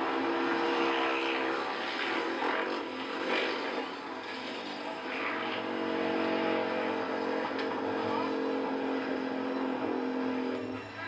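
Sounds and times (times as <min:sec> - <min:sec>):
engine running steadily: 0:00.0 - 0:11.0.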